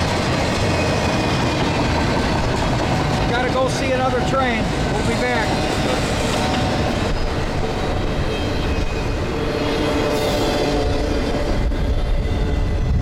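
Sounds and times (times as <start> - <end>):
freight train wheels rumbling: 0.0 - 13.0.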